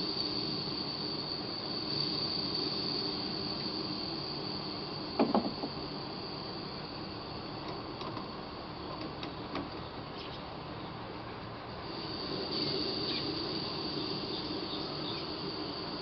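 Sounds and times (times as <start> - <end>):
gas burner hissing: 0.0 - 9.8, 11.7 - 16.0
loud knocks: 5.2 - 5.8.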